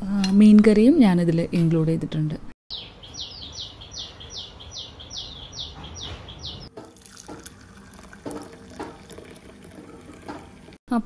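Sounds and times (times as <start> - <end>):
tap running water: 6.7 - 10.8.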